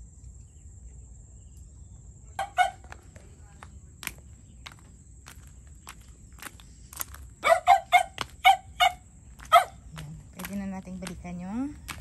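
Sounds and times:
footsteps on gravel: 0:02.6 - 0:12.0.

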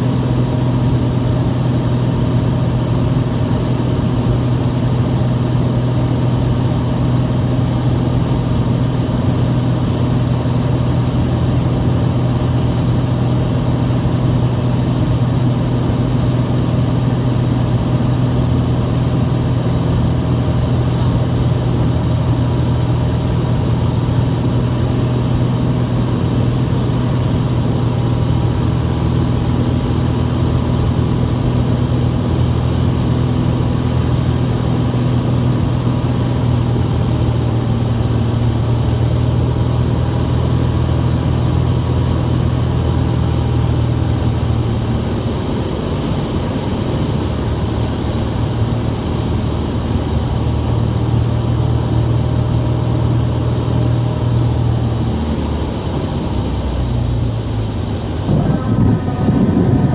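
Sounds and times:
aircraft engine hum in cabin: 0:00.0 - 0:59.9.

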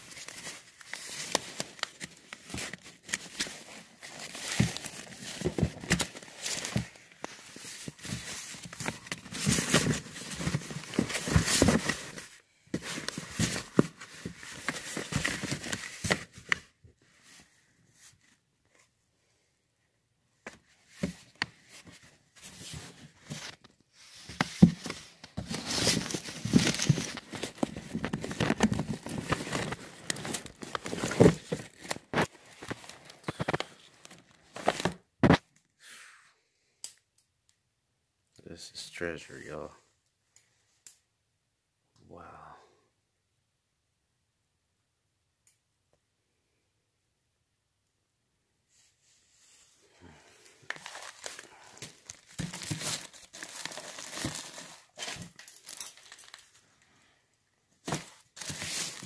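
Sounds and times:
paper pages rustling: 0:00.0 - 0:17.4, 0:20.5 - 0:35.4, 0:50.5 - 0:56.6, 0:57.8 - 0:59.0.

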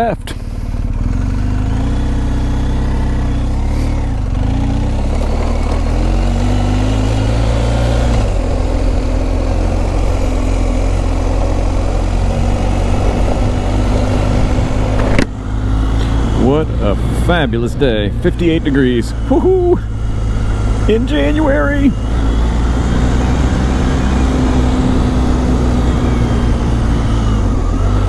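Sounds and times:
motorcycle engine running: 0:00.0 - 0:28.0
wind rush over microphone: 0:12.0 - 0:18.1.

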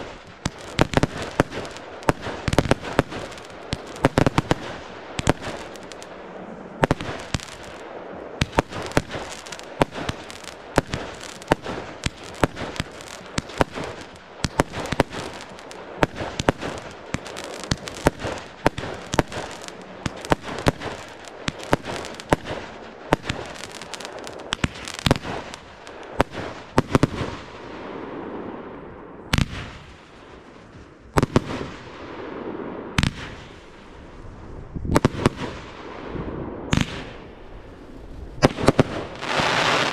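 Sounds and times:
fireworks bangs: 0:00.0 - 0:39.9
fireworks crackling: 0:00.0 - 0:39.9.

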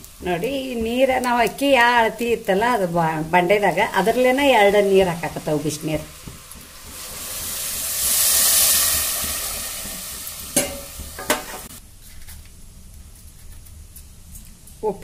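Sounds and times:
water splashing and sizzling: 0:00.0 - 0:11.8
metal bowl knocking pot: 0:10.5 - 0:11.7.

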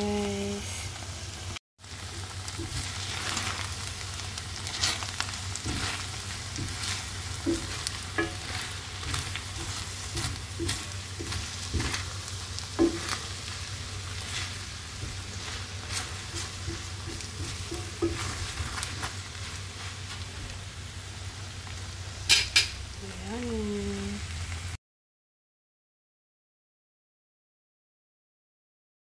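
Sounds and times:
food sizzling in a skillet: 0:00.0 - 0:24.8
utensils scraping a pan: 0:04.6 - 0:12.2, 0:14.2 - 0:20.2.

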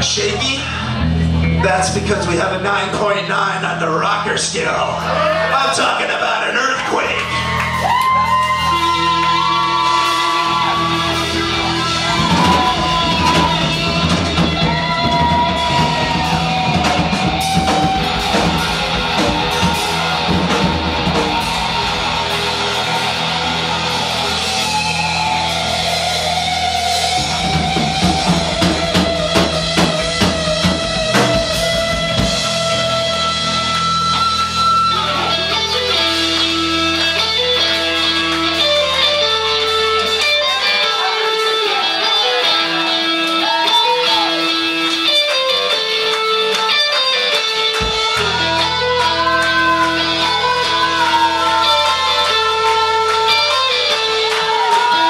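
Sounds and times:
electric guitar lead: 0:00.0 - 0:05.6, 0:06.8 - 0:55.0
bass guitar: 0:00.0 - 0:55.0
drum kit: 0:07.4 - 0:55.0.

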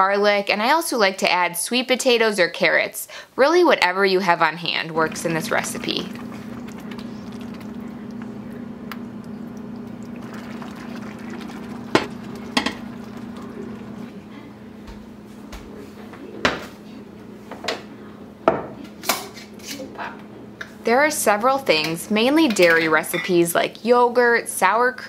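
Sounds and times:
steady low hum: 0:04.6 - 0:18.4
thick food stirred in pot: 0:04.9 - 0:14.2
metal cookware clanking: 0:11.9 - 0:14.0, 0:21.7 - 0:23.5.

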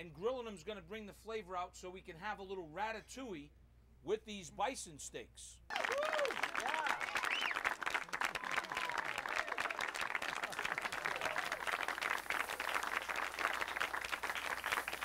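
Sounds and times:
whoops from audience: 0:05.7 - 0:07.7, 0:08.3 - 0:09.9, 0:10.5 - 0:11.8
audience applauding and cheering: 0:05.7 - 0:15.0.

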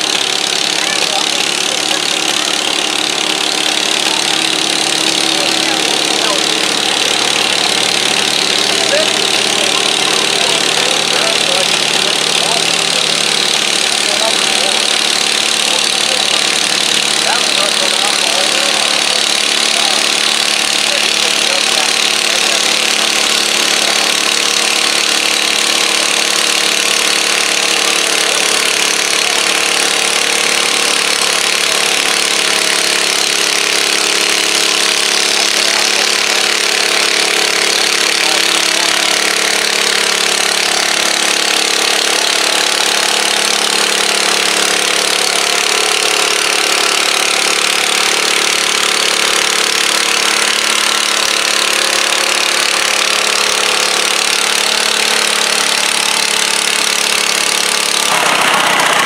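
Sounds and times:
tractor engine running under load: 0:00.0 - 0:59.0.

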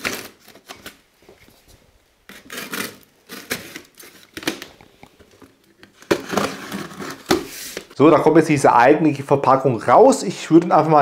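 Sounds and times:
box cutter slicing tape: 0:02.3 - 0:04.6.

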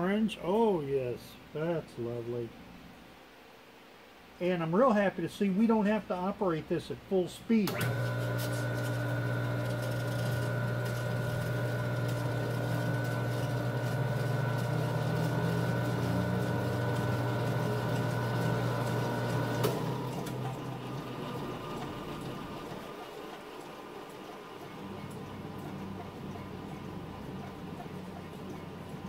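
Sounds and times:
electric motor humming and whining: 0:07.7 - 0:22.8.

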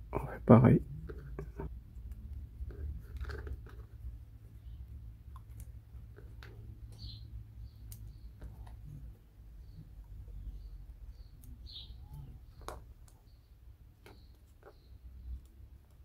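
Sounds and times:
small wooden parts clicking: 0:01.0 - 0:04.1, 0:04.9 - 0:09.0, 0:10.8 - 0:16.0.

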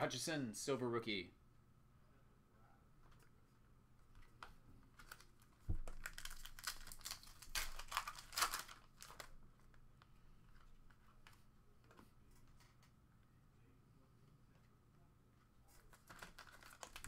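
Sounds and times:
wrapper tearing and crinkling: 0:05.0 - 0:09.4, 0:16.0 - 0:17.0.

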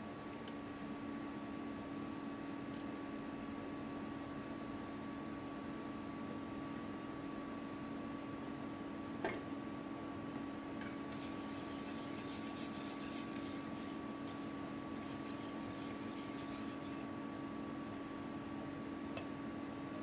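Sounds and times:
steady low hum: 0:00.0 - 0:20.0
wire whisk beating batter in bowl: 0:11.1 - 0:17.1.

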